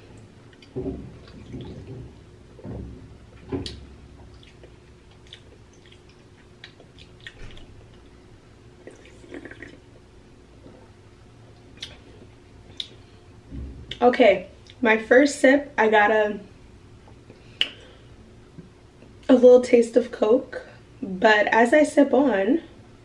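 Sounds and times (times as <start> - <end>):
lip and mouth clicks: 4.4 - 7.7
person slurping and swallowing: 8.8 - 10.0.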